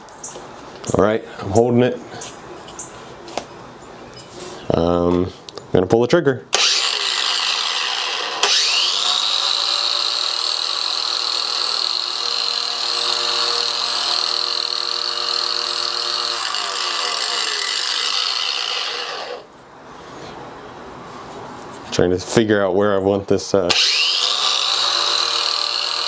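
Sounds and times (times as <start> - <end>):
angle grinder whine: 6.5 - 19.5, 23.7 - 26.0.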